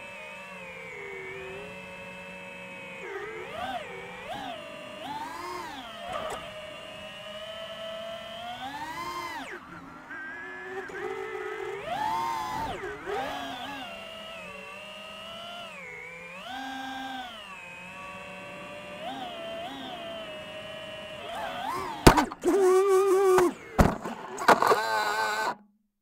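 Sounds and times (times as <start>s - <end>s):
drone motors whining: 0.0s - 25.6s.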